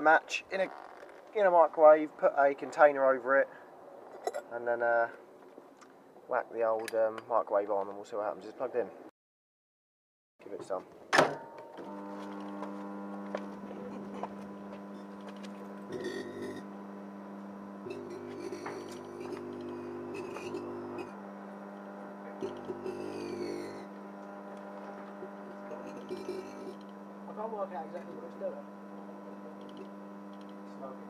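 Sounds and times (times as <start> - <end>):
microwave electrical hum: 11.2 - 31.0
coarse buzz: 11.7 - 31.0.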